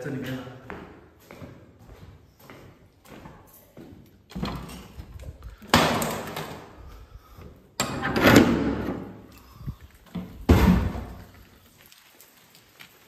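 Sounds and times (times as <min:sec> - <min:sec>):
wooden doors banging shut: 0:05.6 - 0:06.8, 0:07.8 - 0:09.2, 0:10.2 - 0:11.2.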